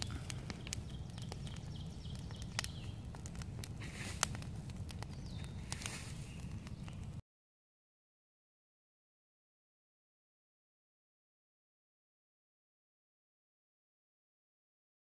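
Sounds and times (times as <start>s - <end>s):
campfire crackling and popping: 0.0s - 7.2s
low fire rumble: 0.0s - 7.2s.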